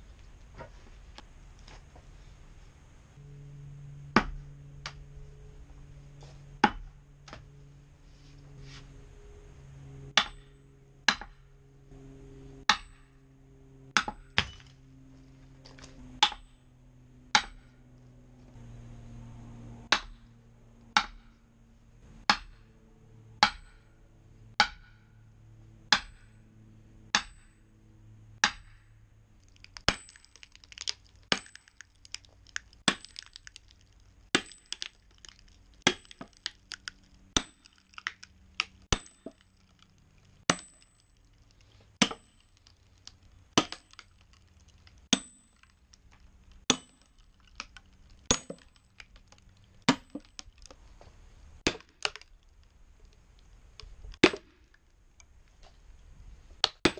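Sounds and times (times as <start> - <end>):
sledgehammer clanking on steel wedge: 10.1 - 11.4, 12.7 - 13.1, 14.0 - 14.8, 16.2 - 16.6, 17.3 - 17.8, 22.3 - 22.7, 23.4 - 23.9, 24.6 - 25.1, 25.9 - 26.3, 27.1 - 27.6
wood crackling as it splits: 29.3 - 56.9.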